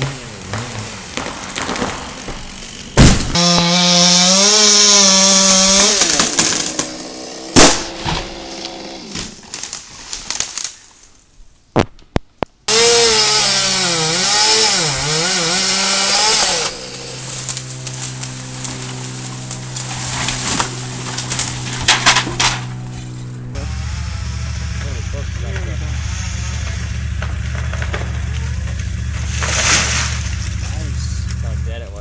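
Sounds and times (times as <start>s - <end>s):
chainsaw cutting: 0.0s - 10.8s, 12.7s - 32.0s.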